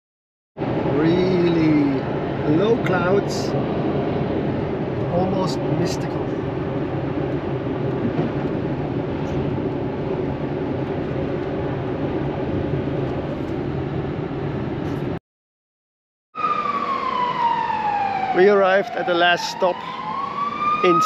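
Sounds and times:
road and wind noise in car: 0:00.6 - 0:15.2
high tone falling in pitch: 0:16.4 - 0:21.0.

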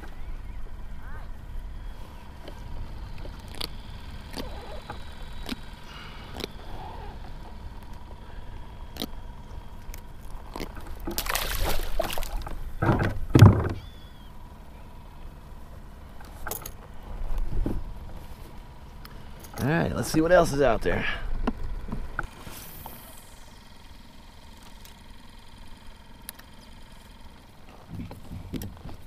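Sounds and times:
fish splashing into water: 0:11.0 - 0:12.6
heavy thumps: 0:12.8 - 0:13.8.

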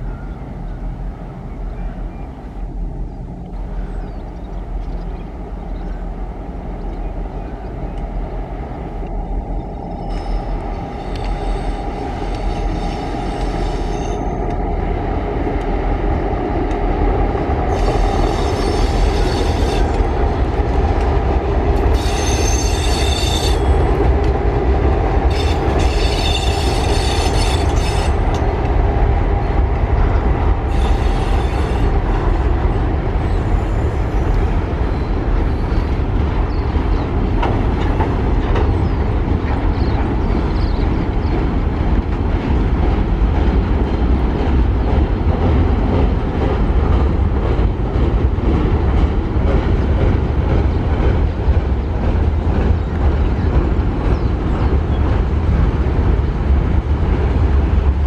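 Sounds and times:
low rumble of train: 0:00.0 - 0:58.0
high-pitched wheel squeal: 0:22.0 - 0:23.8.

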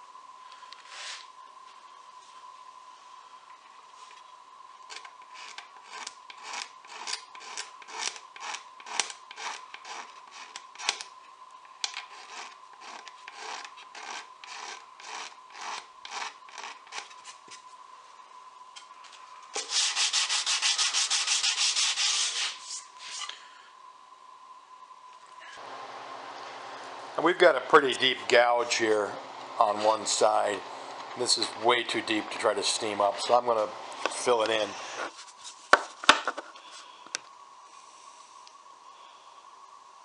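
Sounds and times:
razor blade scraping wood: 0:04.9 - 0:11.1, 0:11.8 - 0:17.6.

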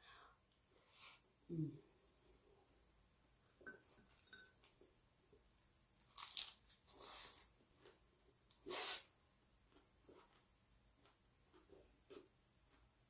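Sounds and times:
chewing and crunching food: 0:06.0 - 0:08.0.

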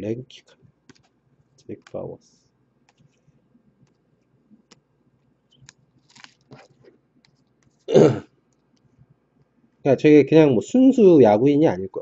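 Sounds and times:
cards clicking and rustling: 0:05.6 - 0:06.7.

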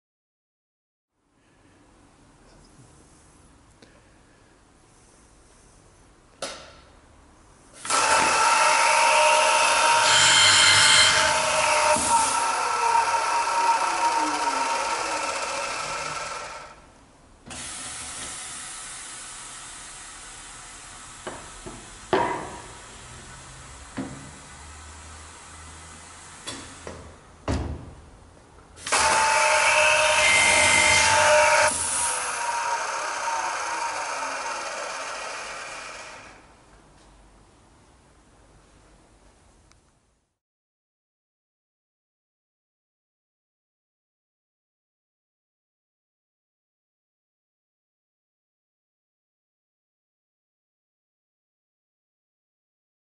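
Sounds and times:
drill bits whirring: 0:07.8 - 0:16.8, 0:28.8 - 0:36.5
spindle motor whining: 0:07.8 - 0:16.8, 0:28.8 - 0:36.5
thump: 0:26.5 - 0:28.0.

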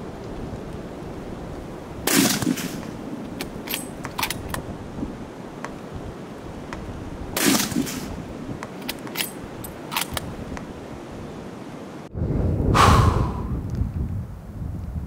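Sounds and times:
rifle shots with echo: 0:02.1 - 0:02.9, 0:07.4 - 0:08.1
sharp metallic clicks: 0:02.1 - 0:04.6, 0:07.4 - 0:10.3.

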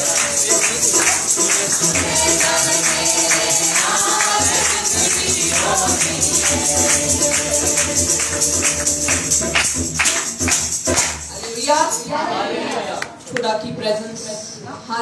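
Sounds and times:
tambourine jingling: 0:00.0 - 0:12.0.

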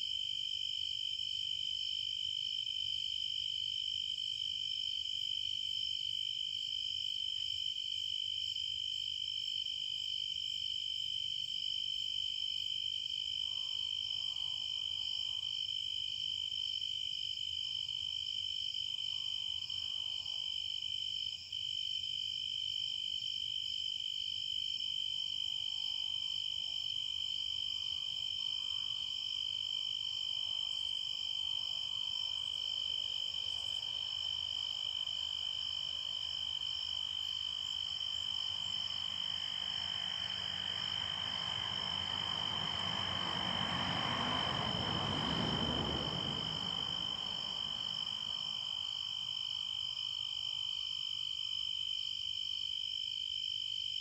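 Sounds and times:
crickets trilling: 0:24.6 - 0:52.0.

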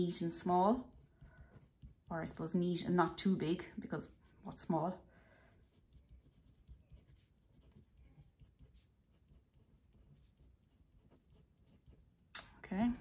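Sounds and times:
pen scratching on paper: 0:00.0 - 0:03.2, 0:05.5 - 0:12.3.

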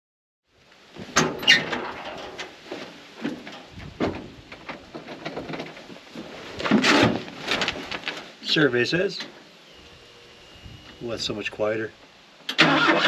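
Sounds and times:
knocks and creaks of truck cab: 0:01.0 - 0:02.6, 0:03.2 - 0:06.0.

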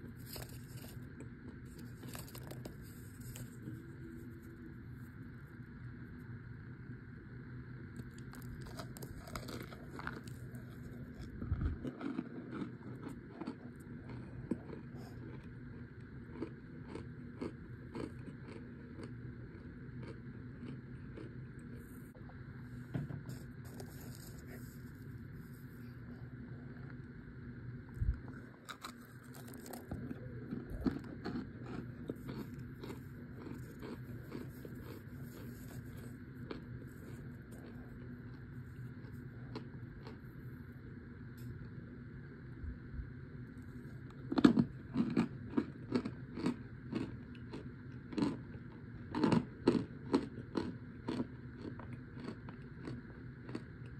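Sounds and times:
cornstarch chunks crackling: 0:00.0 - 0:04.4, 0:08.0 - 0:21.9, 0:23.3 - 0:25.7, 0:28.3 - 0:40.2, 0:44.1 - 0:53.9
person chewing dry crunches: 0:00.0 - 0:05.3, 0:07.9 - 0:22.4, 0:23.2 - 0:27.2, 0:27.8 - 0:40.7, 0:43.5 - 0:53.9.

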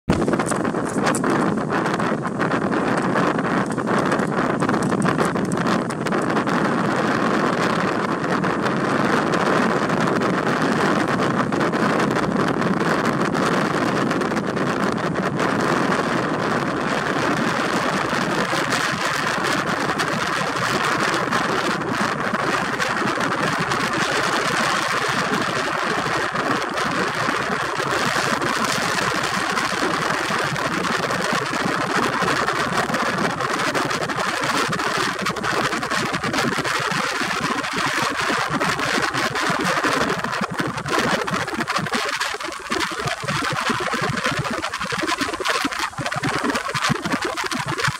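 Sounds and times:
wind and water rushing: 0:00.1 - 0:47.9.

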